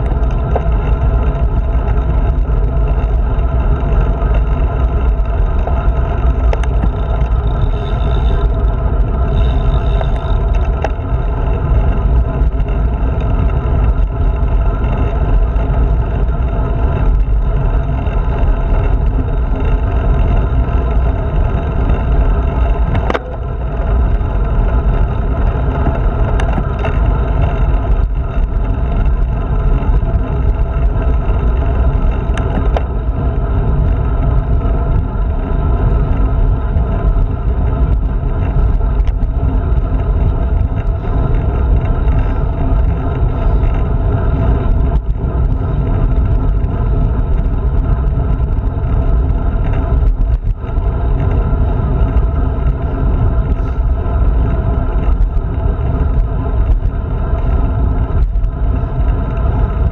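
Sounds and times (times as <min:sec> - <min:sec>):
bike tyre noise on road: 0:00.0 - 0:59.9.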